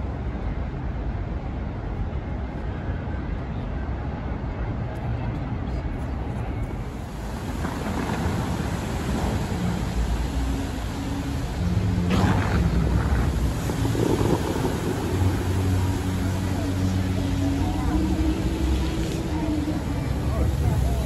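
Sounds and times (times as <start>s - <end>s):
wind buffeting microphone: 5.6s - 21.0s
fountain water rushing: 6.7s - 21.0s.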